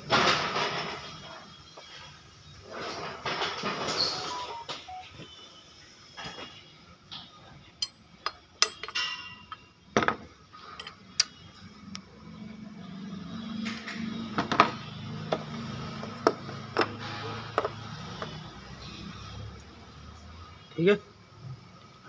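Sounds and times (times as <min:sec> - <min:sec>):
spanner clinking on metal engine parts: 0:07.8 - 0:09.7, 0:10.6 - 0:11.4.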